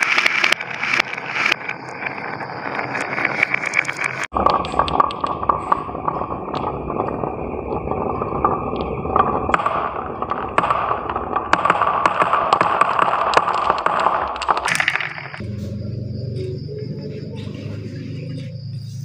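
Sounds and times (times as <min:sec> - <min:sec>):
marbles clicking together: 0:00.0 - 0:15.4
marbles rolling on wood: 0:00.0 - 0:15.4
marbles dropping into plastic bowl: 0:12.4 - 0:15.4.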